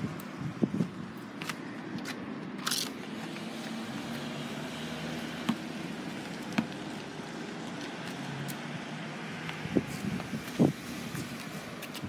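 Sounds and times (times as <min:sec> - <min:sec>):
car passing: 0:03.0 - 0:12.0
basketball bouncing on asphalt: 0:05.0 - 0:07.2.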